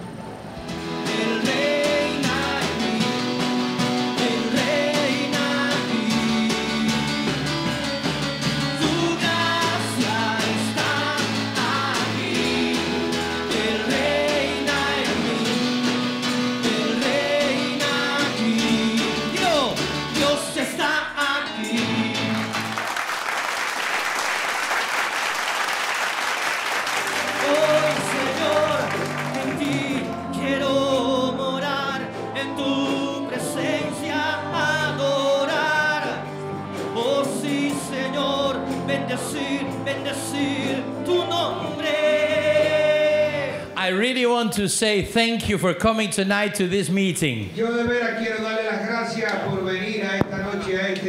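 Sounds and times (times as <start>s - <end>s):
worship band performing: 0.0s - 47.6s
people singing into microphones: 0.7s - 7.5s, 8.6s - 22.8s, 27.1s - 43.9s
congregation applauding: 22.1s - 30.3s.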